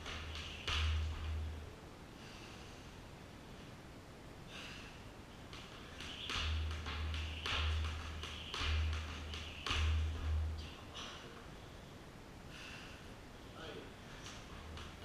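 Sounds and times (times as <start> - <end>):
jump rope slapping floor: 0.0 - 1.4, 5.4 - 10.4
person breathing hard: 2.1 - 3.1, 4.4 - 5.2, 10.9 - 13.3.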